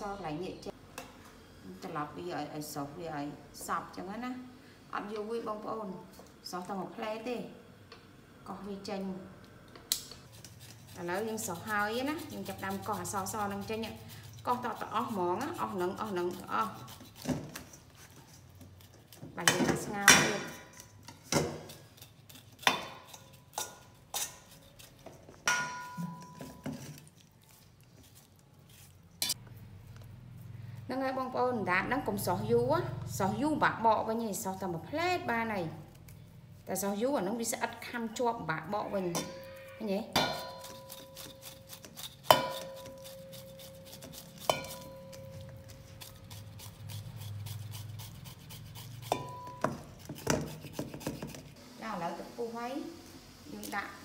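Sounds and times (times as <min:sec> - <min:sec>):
knife scraping meat: 0:10.2 - 0:19.5, 0:20.5 - 0:29.4, 0:39.0 - 0:51.6
knife clinking on metal bowl: 0:25.4 - 0:26.9, 0:40.2 - 0:45.8, 0:49.0 - 0:50.4
metal bowl ringing: 0:25.5 - 0:26.7, 0:38.9 - 0:41.2, 0:44.5 - 0:45.6, 0:49.1 - 0:49.8.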